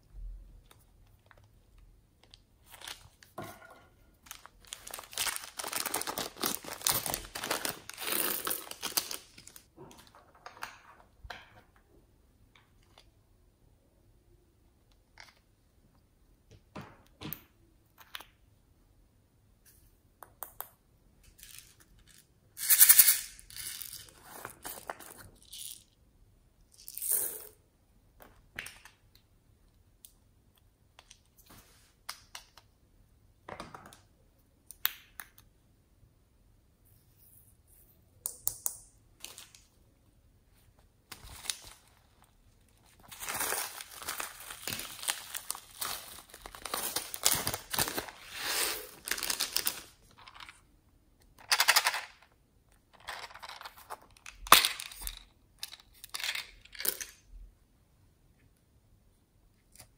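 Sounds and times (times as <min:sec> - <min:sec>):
packets rustling: 0:04.3 - 0:09.7, 0:43.0 - 0:50.5
plastic bag crinkling: 0:04.3 - 0:09.7, 0:41.2 - 0:50.0.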